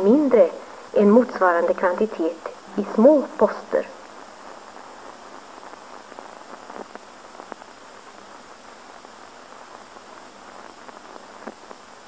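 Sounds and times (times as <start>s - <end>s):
faint crackles: 0.0s - 12.0s
film soundtrack hiss: 0.0s - 12.0s.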